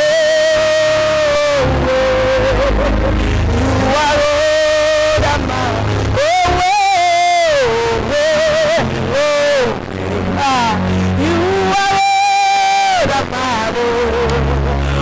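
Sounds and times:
gospel worship music: 0.0 - 15.0.

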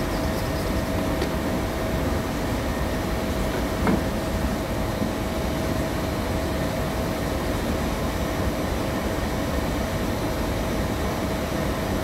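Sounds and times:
machinery rumble and hum: 0.0 - 12.0.

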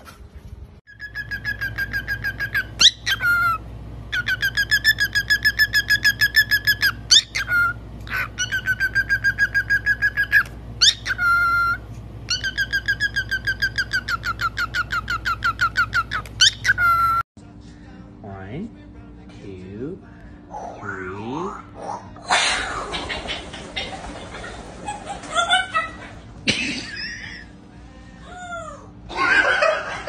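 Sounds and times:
cockatiel chirping whistles: 1.0 - 3.6.

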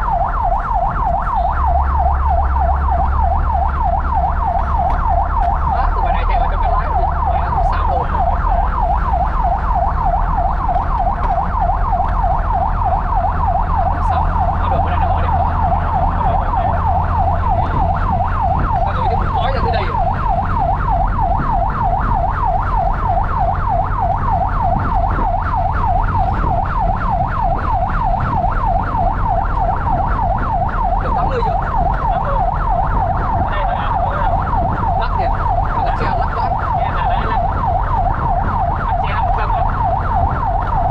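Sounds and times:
siren yelp wail: 0.0 - 40.9
truck engine rumble: 0.0 - 40.9.

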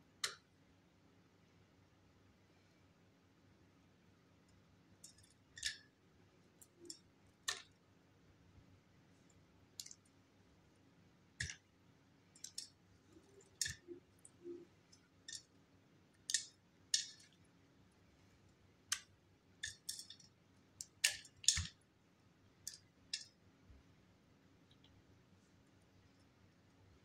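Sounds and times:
dry clay flakes snapping: 16.2 - 17.4, 18.9 - 21.8.

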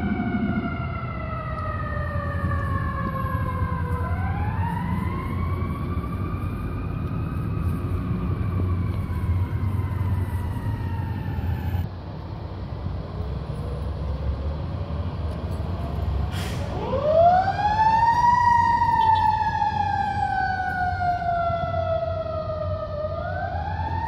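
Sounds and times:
low rumble: 0.0 - 10.6
fire engine siren wailing: 0.0 - 11.9, 13.2 - 24.0.

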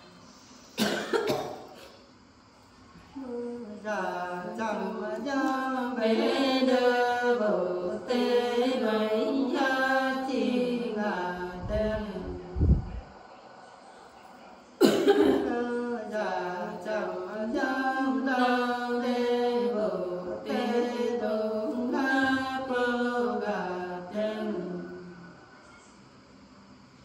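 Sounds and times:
women singing folk song: 3.2 - 12.5, 14.8 - 25.2.

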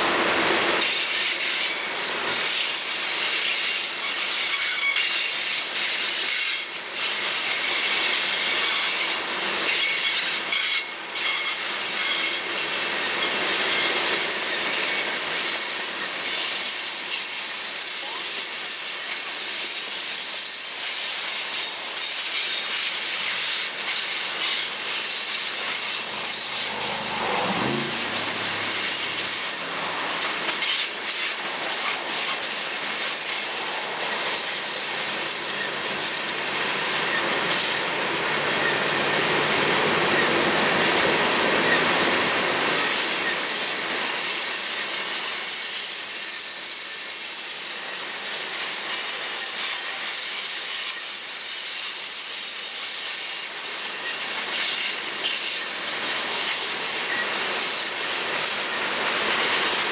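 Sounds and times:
train wheels grinding on rails: 0.0 - 59.9
wheel flanges squealing: 0.8 - 19.4, 21.6 - 39.0, 53.3 - 59.9
brief falling tone: 26.0 - 29.8.

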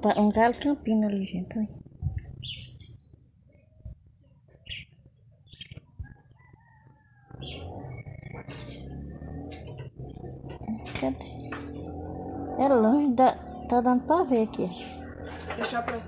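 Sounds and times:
high bird chirps: 2.2 - 6.2, 7.3 - 12.3
distant rooster crowing: 6.0 - 8.4.

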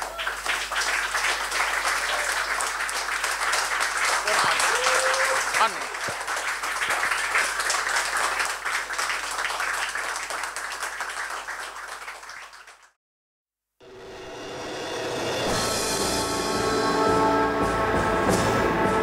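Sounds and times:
audience applauding: 0.0 - 13.0.

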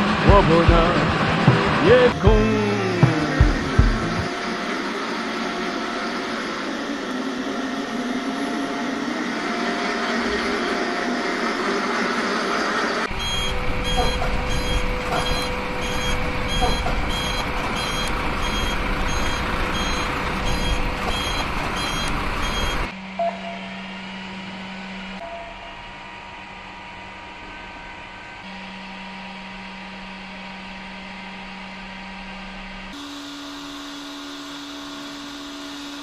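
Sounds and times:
low engine rumble: 0.0 - 8.9
truck reversing alarm beeping: 1.8 - 26.4.

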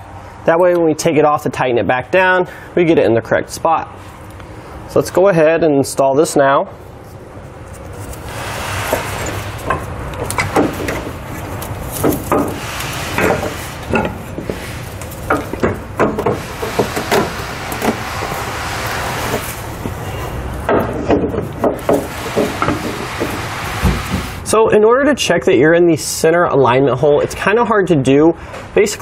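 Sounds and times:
steady low hum: 1.7 - 26.5
knocks and clunks of metal parts: 8.8 - 24.4.

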